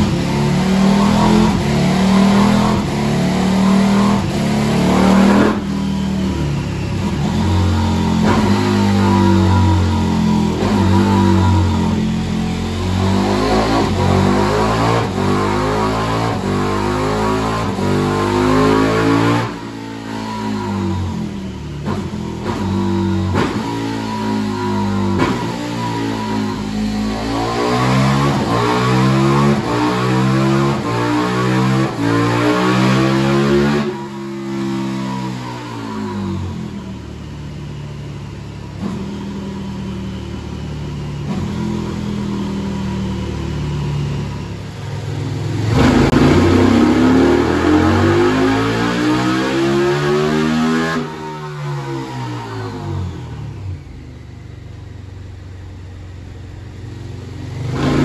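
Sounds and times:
motorcycle engine running: 0.0s - 15.6s
motorcycle engine revving on dyno: 0.0s - 58.0s.

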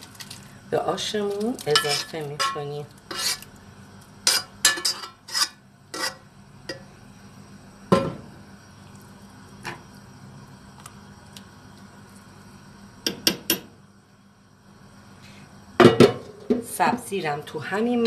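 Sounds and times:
metal spoon clinking on a pan: 1.6s - 3.3s.

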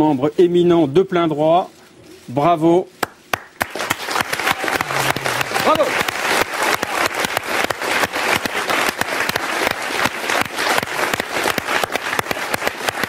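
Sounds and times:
audience applauding: 3.3s - 13.0s.

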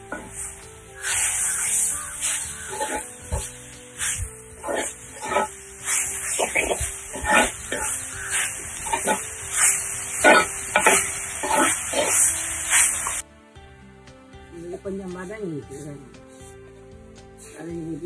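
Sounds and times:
food sizzling: 0.0s - 13.3s
ladle scraping clay pot: 2.5s - 9.2s.

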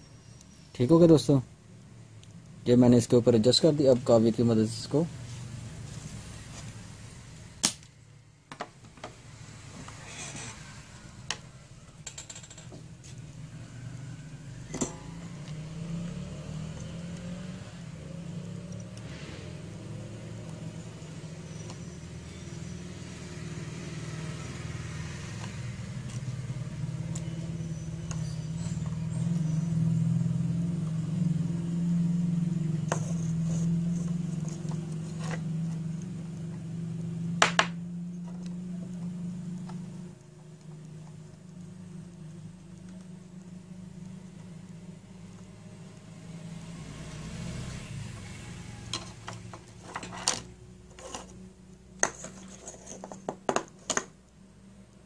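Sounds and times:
low engine-like hum: 9.2s - 52.0s.

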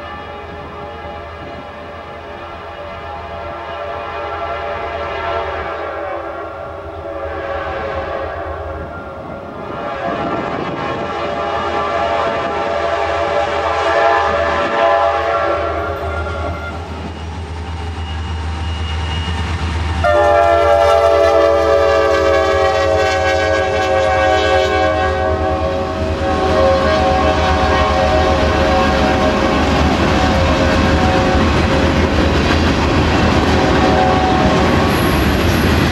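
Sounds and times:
locomotive air horn blasts: 2.7s - 8.8s, 9.7s - 16.8s, 20.0s - 31.8s, 33.4s - 35.0s.

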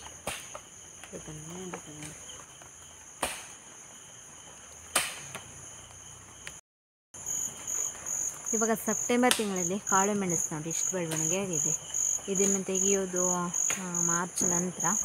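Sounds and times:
high-pitched insect chorus: 0.0s - 6.6s, 7.2s - 15.0s.

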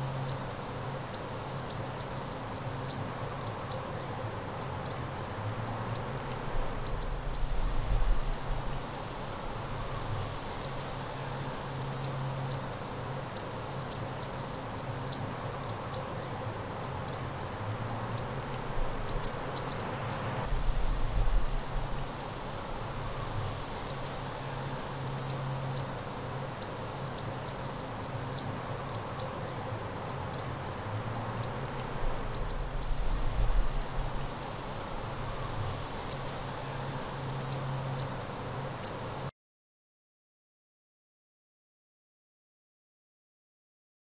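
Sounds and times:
wind rumbling on microphone: 5.2s - 14.2s, 15.4s - 39.2s
high insect chirps: 20.5s - 39.2s.

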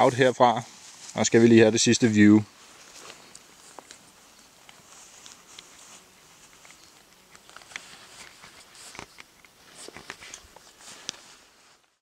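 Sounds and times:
light hiss: 0.0s - 12.0s
small clicks and rustles: 2.8s - 12.0s.

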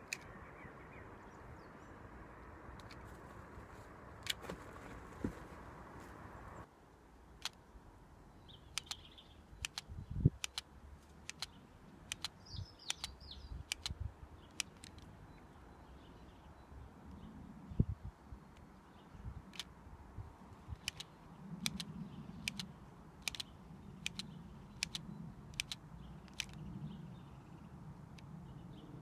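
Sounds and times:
birds chirping: 0.0s - 6.7s, 7.6s - 29.0s
plastic toy gun clicks: 9.6s - 15.1s, 20.8s - 26.7s.

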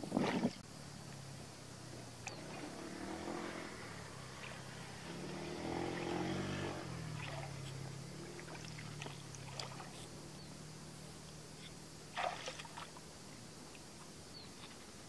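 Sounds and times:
distant motor engine hum: 0.6s - 15.0s
hands splashing in shallow water: 7.2s - 7.6s, 8.4s - 10.1s, 12.1s - 13.0s.

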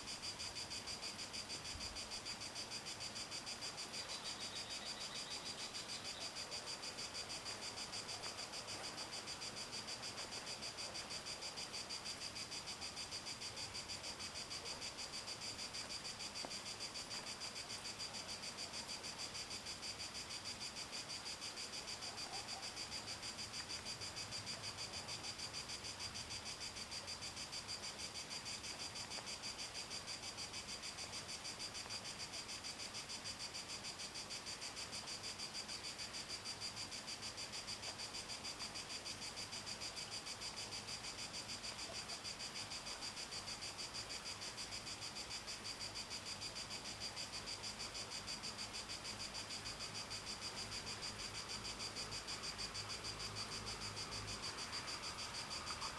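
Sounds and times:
crickets chirping: 0.0s - 55.9s.

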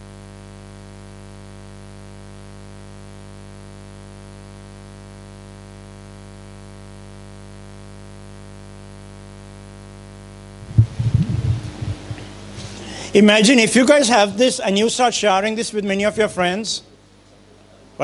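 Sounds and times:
electrical hum from speakers: 0.0s - 18.0s
microphone handling thumps: 10.6s - 12.9s.

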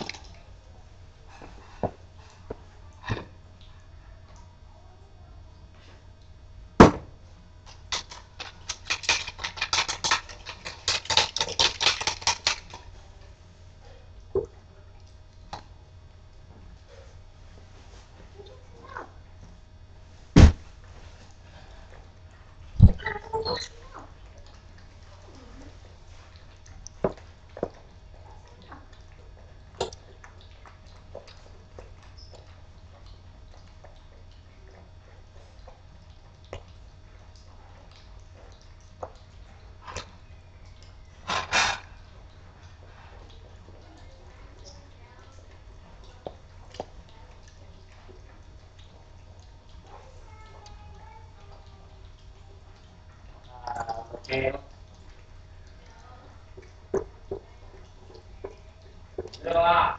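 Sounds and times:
puppy lapping from metal bowl: 7.6s - 12.9s, 22.9s - 59.4s.

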